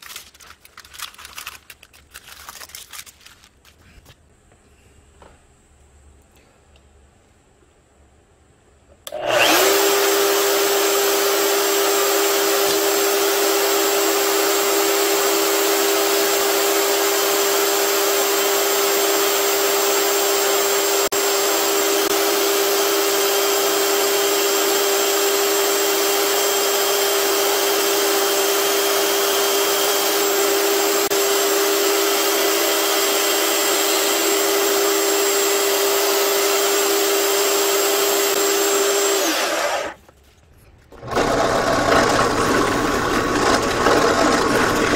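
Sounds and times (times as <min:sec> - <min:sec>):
band saw cutting wood: 0:09.1 - 0:40.0, 0:41.0 - 0:44.9.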